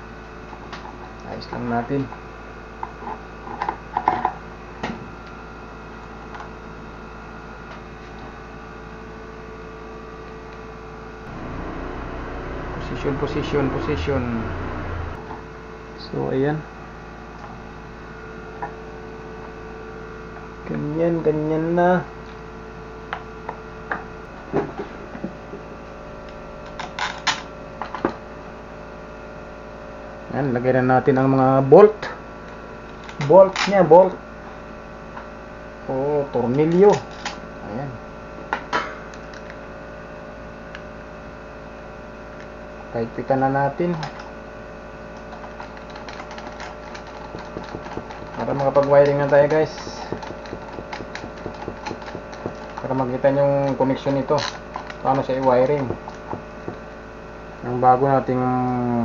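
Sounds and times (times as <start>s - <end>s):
steady background hum: 0.0s - 59.0s
steady low hum: 10.9s - 15.7s, 23.6s - 30.1s
clicks from handling a fan motor: 45.1s - 56.4s.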